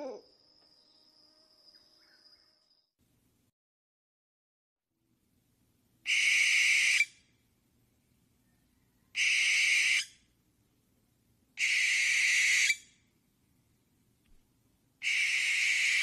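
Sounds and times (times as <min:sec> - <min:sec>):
owl screeching: 0:06.1 - 0:07.2, 0:09.1 - 0:10.2, 0:11.6 - 0:12.9, 0:15.0 - 0:16.0.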